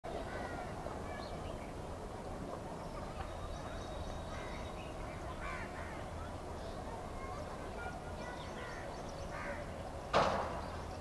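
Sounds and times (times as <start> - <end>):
steady background noise: 0.0 - 11.0
crows cawing: 0.3 - 0.7, 5.4 - 6.0, 8.6 - 9.7.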